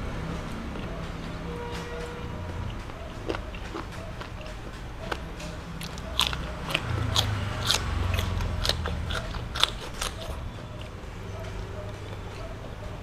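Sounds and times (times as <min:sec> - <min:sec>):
low rumble of chewing: 0:00.0 - 0:13.0
cucumber crunching: 0:02.3 - 0:11.0.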